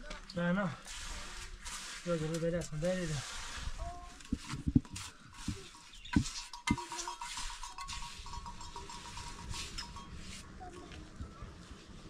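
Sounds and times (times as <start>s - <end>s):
trowel knocking and scraping bricks: 4.2s - 10.0s.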